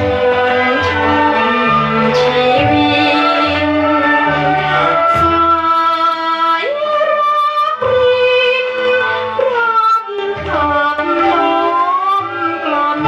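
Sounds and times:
old pop song from vinyl record: 0:00.3 - 0:07.2.

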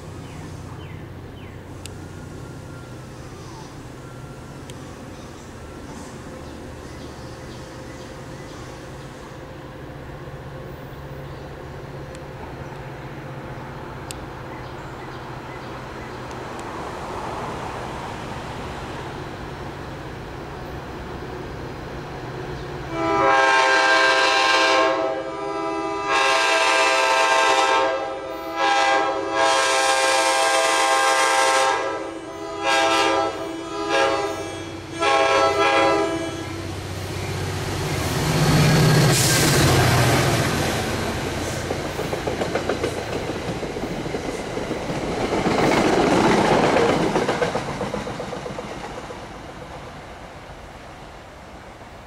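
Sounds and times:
diesel engine of passing train: 0:00.0 - 0:52.0
locomotive air horn blasts: 0:22.9 - 0:36.7
train wheels clacking over rail joints: 0:41.2 - 0:50.1.

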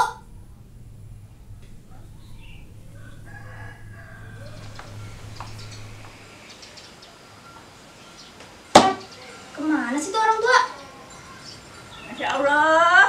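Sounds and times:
low steady hum: 0:00.0 - 0:06.4.

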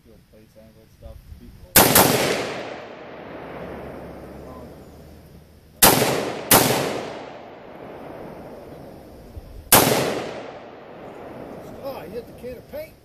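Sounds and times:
rifle shots with echo: 0:01.7 - 0:04.9, 0:05.8 - 0:09.1, 0:09.7 - 0:12.1.

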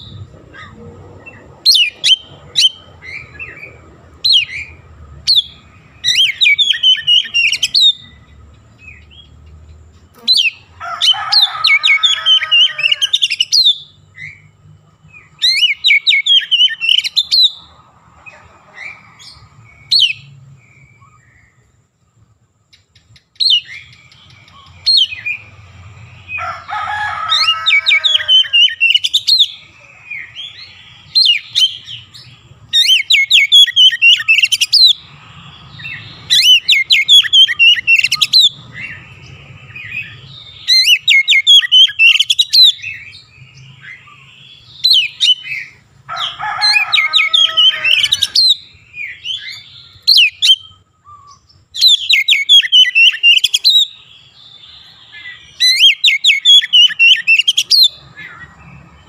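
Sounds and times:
bird singing whistles and trills: 0:00.0 - 0:09.4, 0:15.2 - 0:17.6, 0:27.8 - 0:35.0, 0:35.6 - 0:45.8, 0:47.2 - 0:58.5
harsh mimicked bird calls: 0:00.0 - 0:21.8, 0:22.7 - 0:59.0.

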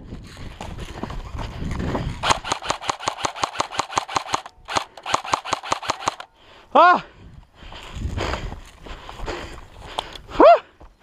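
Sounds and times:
airsoft rifle shots: 0:02.2 - 0:06.3.

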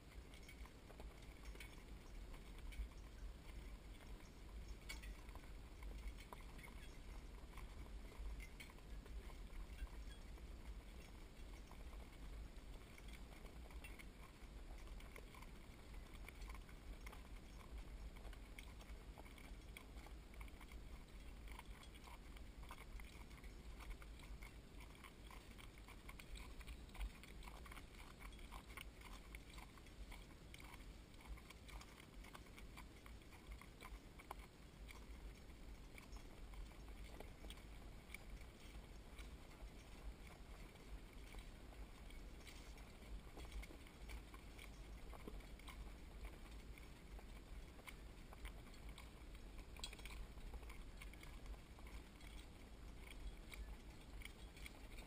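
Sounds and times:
hooves on gravel lane: 0:00.0 - 0:55.0.

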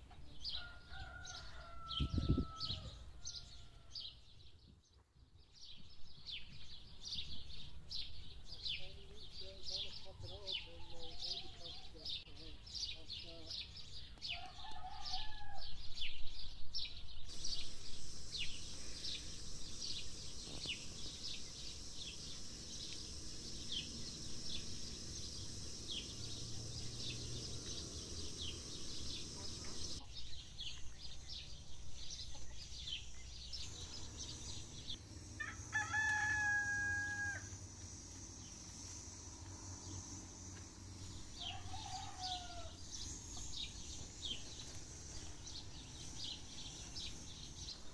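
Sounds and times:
small birds chirping: 0:00.0 - 0:47.9
rooster crowing: 0:00.5 - 0:04.0, 0:14.4 - 0:15.8, 0:35.4 - 0:37.6, 0:41.4 - 0:42.8
short low rooster calls: 0:00.6 - 0:03.7, 0:35.4 - 0:37.5.

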